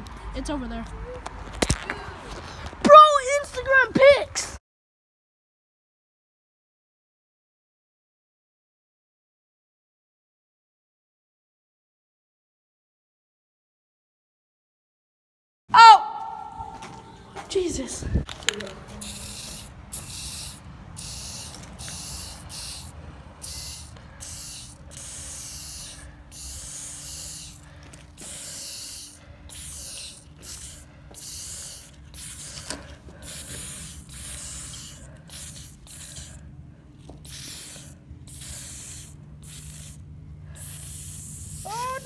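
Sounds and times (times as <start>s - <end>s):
spray paint can hissing: 19.0s - 36.4s, 37.0s - 42.0s.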